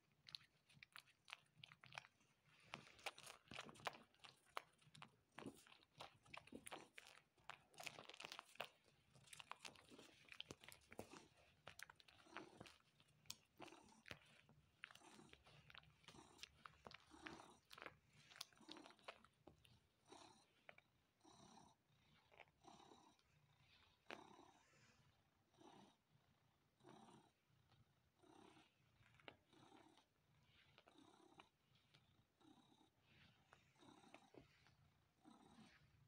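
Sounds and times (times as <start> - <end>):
cat wet sucking clicks: 0.1 - 19.8.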